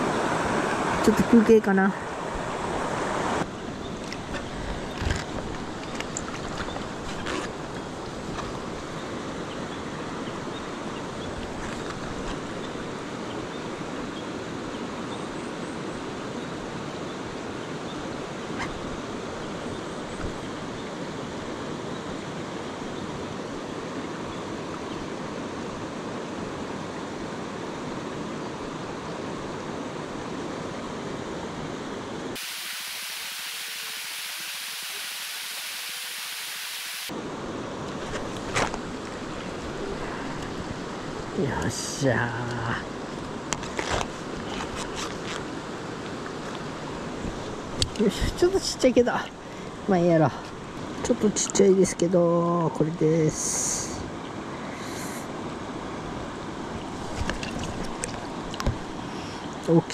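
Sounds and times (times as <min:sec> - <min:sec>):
river water rushing: 0:00.0 - 0:14.6, 0:20.4 - 0:51.1
thin high hiss: 0:32.4 - 0:37.1.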